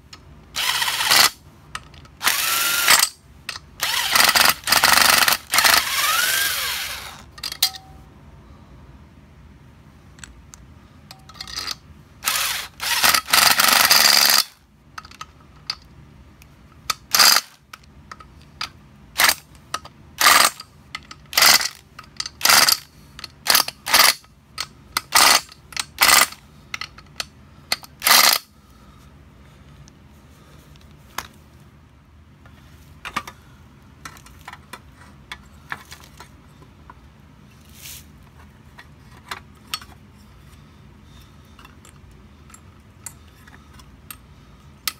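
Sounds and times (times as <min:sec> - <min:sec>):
hand ratchet clicking: 0:00.6 - 0:07.8, 0:11.4 - 0:15.9, 0:16.9 - 0:17.5, 0:19.2 - 0:28.5
metal tools clicking: 0:07.1 - 0:08.0.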